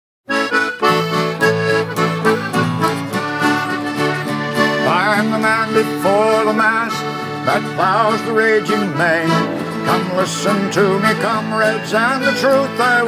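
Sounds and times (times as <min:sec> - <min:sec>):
button accordion: 0:00.3 - 0:13.0
mandolin: 0:00.3 - 0:13.0
strummed acoustic guitars: 0:00.3 - 0:13.0
person singing: 0:04.8 - 0:13.0.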